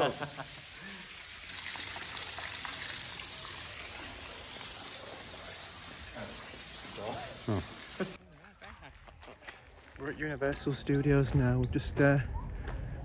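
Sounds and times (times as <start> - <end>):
running water rushing: 0.0 - 8.2.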